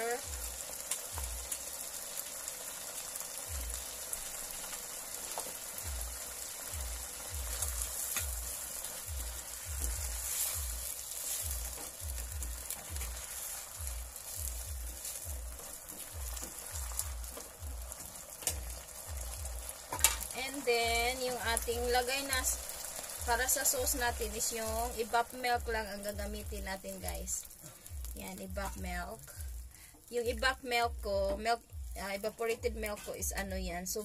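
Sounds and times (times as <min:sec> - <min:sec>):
food sizzling in a frying pan: 0:00.0 - 0:34.0
spatula stirring thuds: 0:05.2 - 0:30.1.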